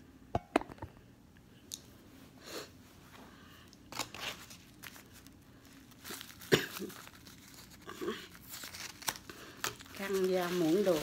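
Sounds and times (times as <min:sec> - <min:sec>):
paper napkin rustling and crinkling: 0:03.9 - 0:11.0.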